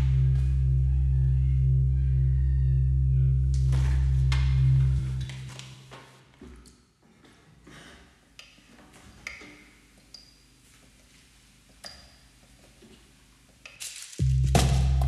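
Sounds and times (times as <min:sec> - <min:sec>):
bass-heavy beat with percussion: 0:00.0 - 0:05.2, 0:14.2 - 0:15.0
faint low hum: 0:00.0 - 0:05.9.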